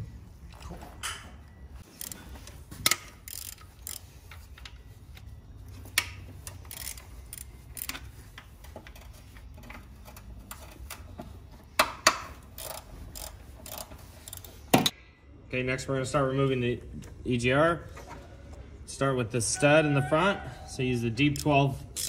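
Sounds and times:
hand ratchet clicking: 0:01.9 - 0:02.2, 0:02.8 - 0:04.7, 0:06.0 - 0:11.1, 0:11.8 - 0:14.5.

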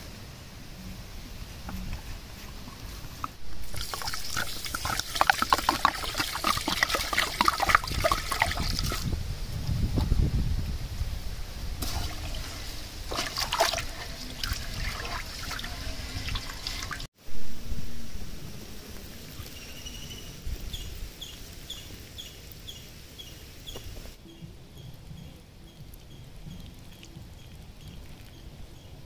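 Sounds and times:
rice being washed in water: 0:03.3 - 0:09.2, 0:11.8 - 0:17.1
water trickling from pot: 0:03.6 - 0:09.2, 0:11.8 - 0:17.1, 0:25.0 - 0:29.0.

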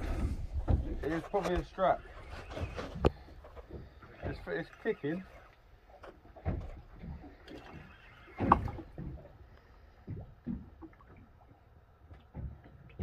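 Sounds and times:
water slapping against boat hull: 0:00.0 - 0:13.0.

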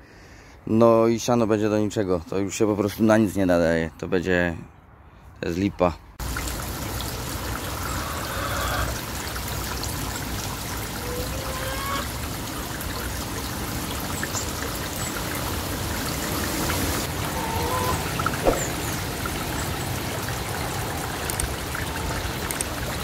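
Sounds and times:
stream trickling and babbling: 0:06.2 - 0:23.0.

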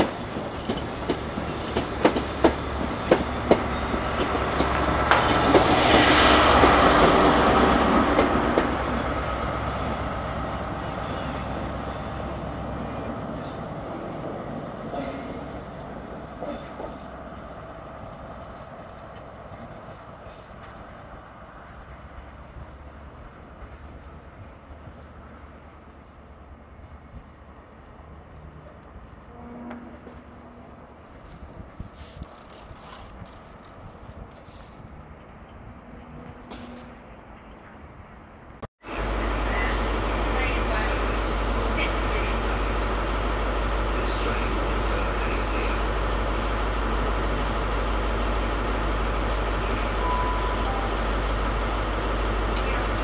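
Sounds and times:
train wheels clacking over rail joints: 0:00.0 - 0:10.0
train passing: 0:00.0 - 0:53.0.

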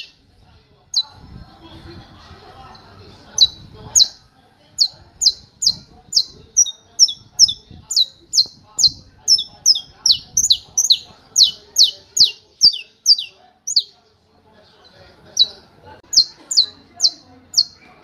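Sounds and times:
finch singing sharp notes: 0:04.8 - 0:13.9, 0:15.4 - 0:18.0.

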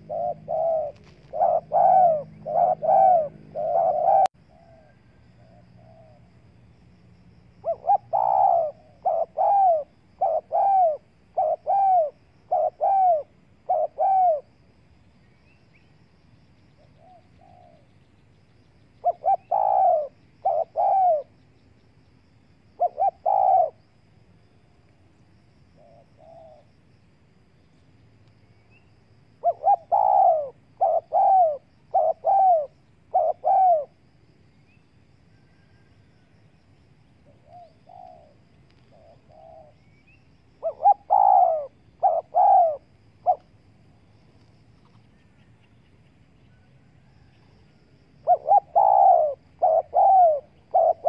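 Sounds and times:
doves cooing: 0:00.0 - 0:06.3, 0:07.6 - 0:14.6, 0:19.0 - 0:21.4, 0:22.8 - 0:23.9, 0:29.4 - 0:34.0, 0:37.2 - 0:39.9, 0:40.6 - 0:43.5, 0:48.2 - 0:51.0.

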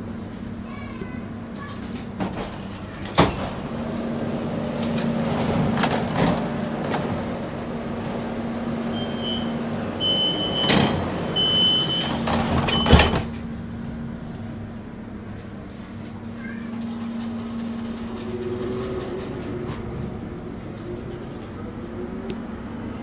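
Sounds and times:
high door-warning beeps: 0:08.9 - 0:13.2.

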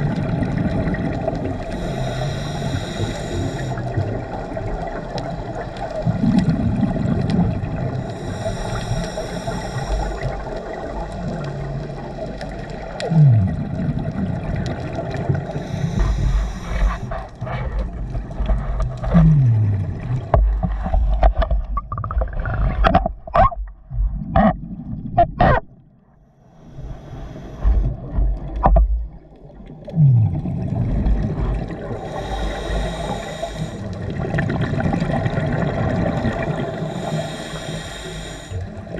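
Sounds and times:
exhaled bubbles rushing: 0:00.0 - 0:02.2, 0:03.7 - 0:08.1, 0:10.1 - 0:26.0, 0:26.7 - 0:32.8, 0:33.9 - 0:37.2
scuba regulator inhale hiss: 0:01.7 - 0:04.0, 0:07.9 - 0:10.5, 0:15.4 - 0:17.3, 0:26.4 - 0:27.9, 0:31.9 - 0:34.0, 0:36.6 - 0:38.8.

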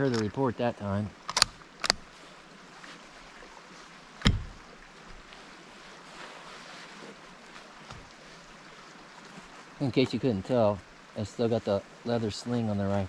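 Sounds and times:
faint steady hiss: 0:00.0 - 0:13.0
sharp metallic click: 0:01.3 - 0:02.0.

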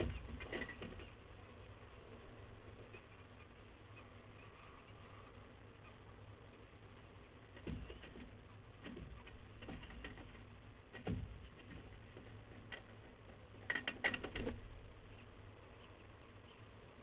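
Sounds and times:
knocks and scratches on metal grating: 0:00.0 - 0:01.2, 0:07.5 - 0:15.2.

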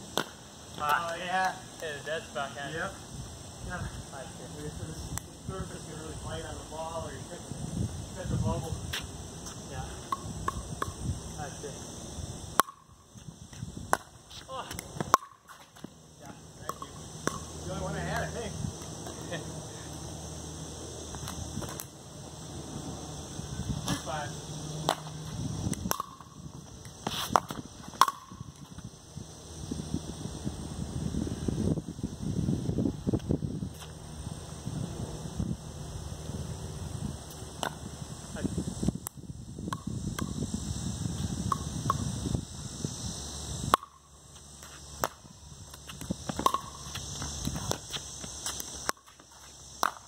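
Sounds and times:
ball bouncing on concrete: 0:00.1 - 0:01.6, 0:08.9 - 0:11.1, 0:12.5 - 0:19.2, 0:21.1 - 0:21.9, 0:24.8 - 0:28.9, 0:37.3 - 0:37.9, 0:38.9 - 0:40.4, 0:41.2 - 0:42.2, 0:43.6 - 0:50.0
pickleball paddle hits and bounces: 0:12.6 - 0:12.9, 0:13.9 - 0:16.0, 0:16.6 - 0:17.5, 0:24.8 - 0:25.1, 0:25.7 - 0:26.4, 0:27.2 - 0:28.4, 0:43.7 - 0:44.0, 0:44.6 - 0:45.2, 0:45.8 - 0:49.2, 0:49.8 - 0:50.0.

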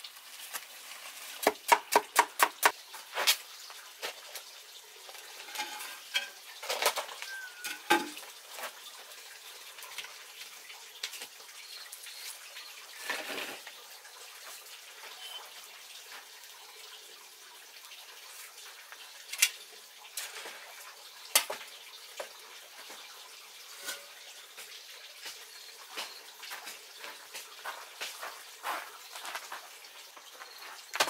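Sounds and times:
wood fire crackling: 0:00.0 - 0:02.3
steady watery hiss: 0:02.6 - 0:31.0.

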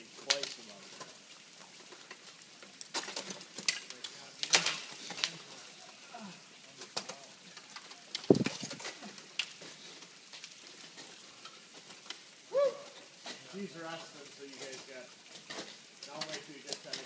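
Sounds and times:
heavy low thump: 0:08.3 - 0:08.7.

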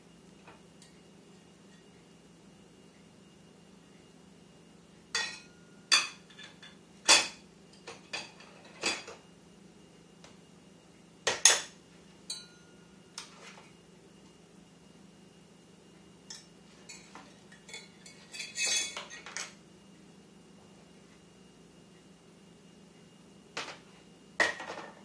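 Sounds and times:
metal cups clinking together: 0:12.3 - 0:12.6.

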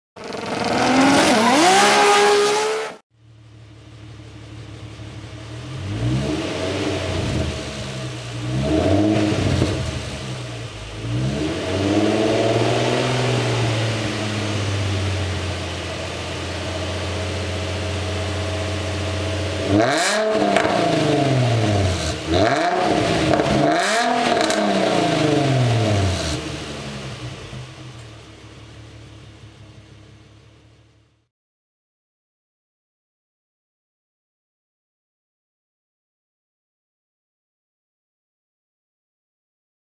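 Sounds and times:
car engine revving: 0:00.2 - 0:03.0, 0:03.9 - 0:30.9.

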